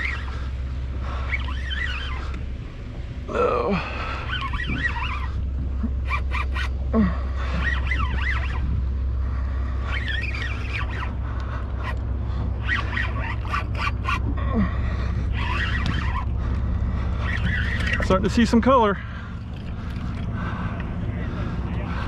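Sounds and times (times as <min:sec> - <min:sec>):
fishing reel clicking and whining: 0:00.0 - 0:02.4, 0:04.0 - 0:09.1, 0:09.8 - 0:14.6, 0:15.2 - 0:18.7
boat engine hum: 0:00.0 - 0:22.0.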